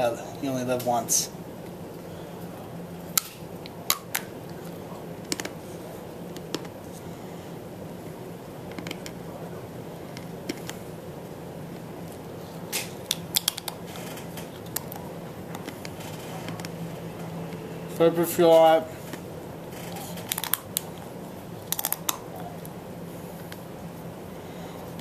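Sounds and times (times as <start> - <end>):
steady low hum: 0.0 - 25.0
person chewing hard gum: 19.9 - 22.8.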